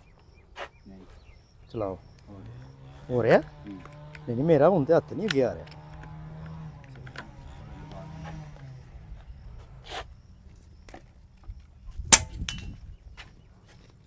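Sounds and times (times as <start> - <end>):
air rifle shot: 12.1 - 12.6.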